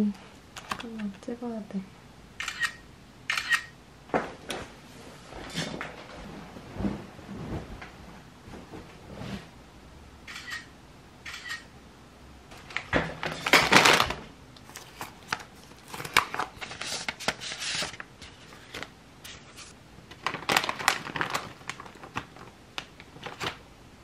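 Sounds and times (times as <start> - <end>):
plastic wrappers crinkling: 12.5 - 23.6.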